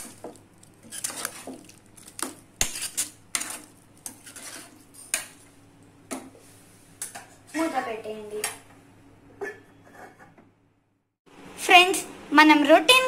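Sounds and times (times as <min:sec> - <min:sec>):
steel ladle scraping metal pan: 0:00.8 - 0:01.6, 0:02.6 - 0:05.4.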